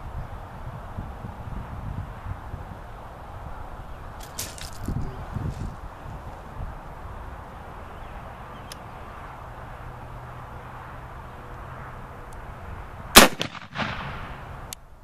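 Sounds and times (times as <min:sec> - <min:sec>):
weaker echoing bang: 0:13.2 - 0:14.4
rifle gunshot: 0:13.2 - 0:14.5.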